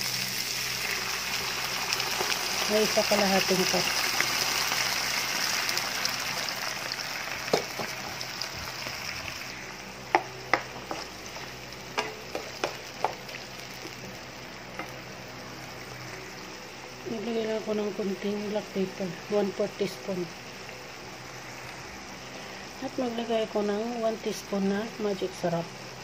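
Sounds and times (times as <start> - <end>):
vegetables sizzling in a pan: 0.0 - 26.0
wooden spatula knocking pan: 12.0 - 13.2.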